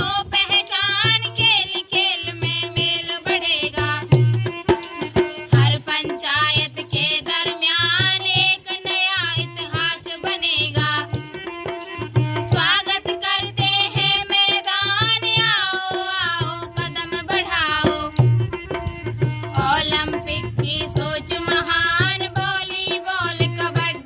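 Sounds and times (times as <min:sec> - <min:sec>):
girls singing together: 0:00.0 - 0:04.2, 0:05.6 - 0:11.1, 0:12.5 - 0:18.1, 0:19.5 - 0:24.0
steady drum beat: 0:10.7 - 0:24.0.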